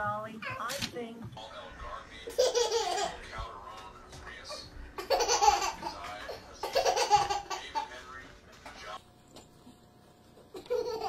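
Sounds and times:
baby laughing: 2.2 - 3.2, 5.0 - 8.0, 10.4 - 11.0.

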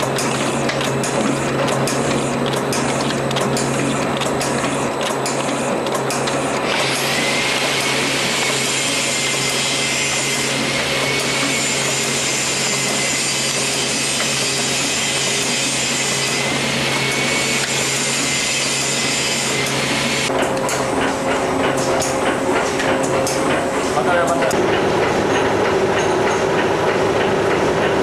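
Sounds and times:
conveyor mechanism clicking: 0.0 - 7.1
packaging machine hissing: 6.6 - 20.3.

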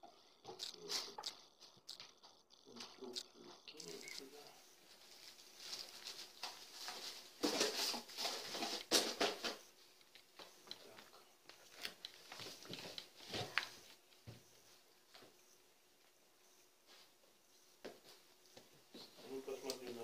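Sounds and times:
plastic packaging crinkling: 2.8 - 9.6.

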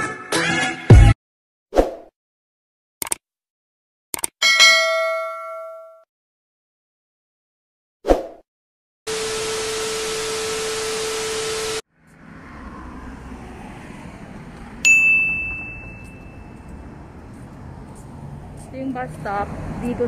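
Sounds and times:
bright ding: 4.4 - 6.0, 14.9 - 16.5
tv static hiss: 9.1 - 11.8
faint road traffic: 11.8 - 20.0.

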